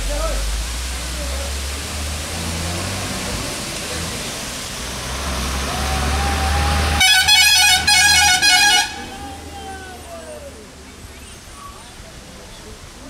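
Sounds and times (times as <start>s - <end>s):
vehicle passing by: 0.0s - 11.1s
water rushing: 0.0s - 13.0s
vehicle horn blowing: 7.0s - 9.5s.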